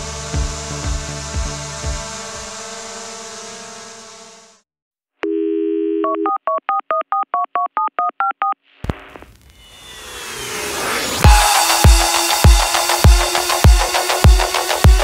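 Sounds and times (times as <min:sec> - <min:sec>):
telephone dial tone: 0:05.2 - 0:08.6
touch-tone dialing beeps: 0:06.0 - 0:08.6
rising whoosh: 0:09.4 - 0:14.2.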